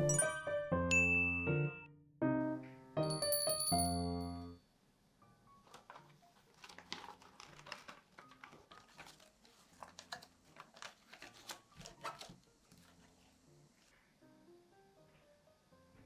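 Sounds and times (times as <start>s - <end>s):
baking liner rustling and crinkling: 5.6s - 14.1s.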